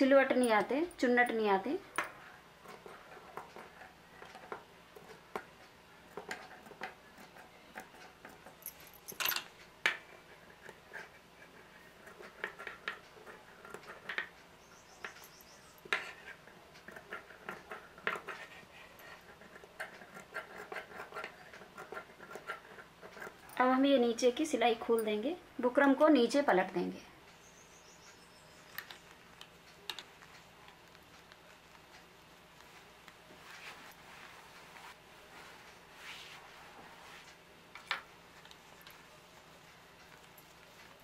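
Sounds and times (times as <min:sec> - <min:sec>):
fabric handling: 0:32.7 - 0:37.4.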